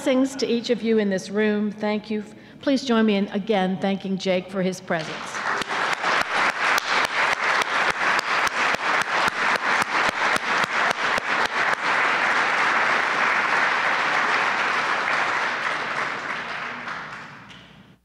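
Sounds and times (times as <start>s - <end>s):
audience applauding: 5.1s - 17.8s.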